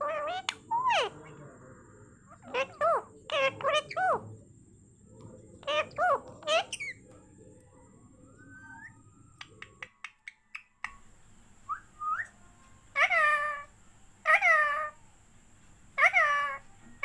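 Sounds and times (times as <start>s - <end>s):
parakeet drawn-out calls: 0.0s - 1.3s, 2.3s - 4.2s, 5.6s - 7.0s, 12.3s - 15.0s, 16.0s - 17.0s
parakeet whistling: 7.9s - 11.1s, 11.7s - 12.4s
parakeet clicks: 9.4s - 11.1s.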